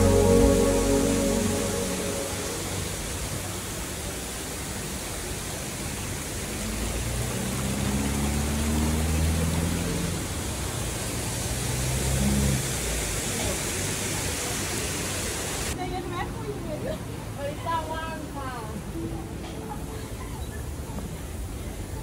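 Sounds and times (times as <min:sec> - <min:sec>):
low hum: 0:00.0 - 0:03.8
waterfall rushing: 0:00.0 - 0:11.4.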